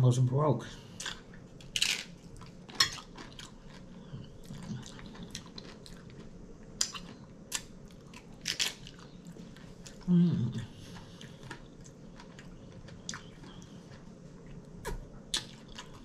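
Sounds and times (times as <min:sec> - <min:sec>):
tortilla chip crunching: 0:01.0 - 0:09.9
chewing: 0:01.0 - 0:16.0.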